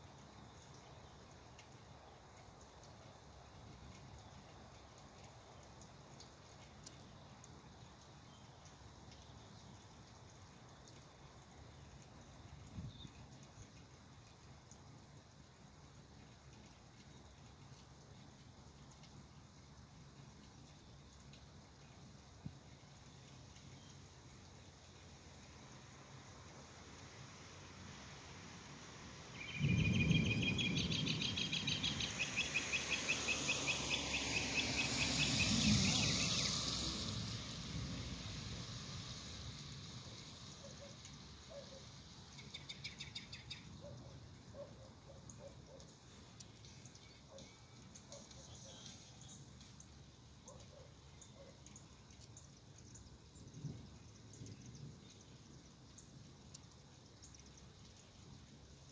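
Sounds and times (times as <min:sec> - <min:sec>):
faint high chirps: 0:29.3 - 0:36.8, 0:44.7 - 0:52.4.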